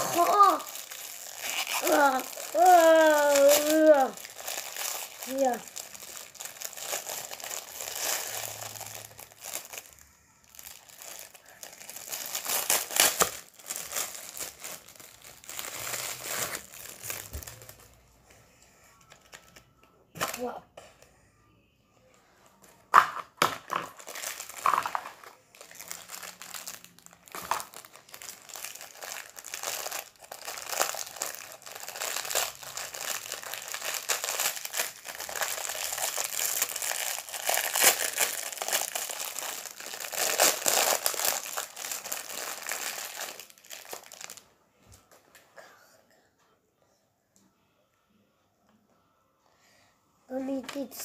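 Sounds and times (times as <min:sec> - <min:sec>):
plastic packet crinkling: 0:00.0 - 0:18.0, 0:22.9 - 0:45.2.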